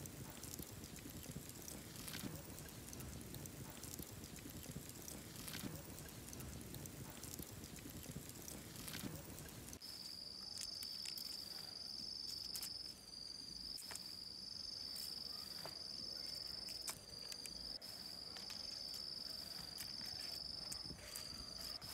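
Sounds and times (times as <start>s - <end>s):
faint clicks: 0.0s - 9.8s
insect trilling: 0.0s - 21.9s.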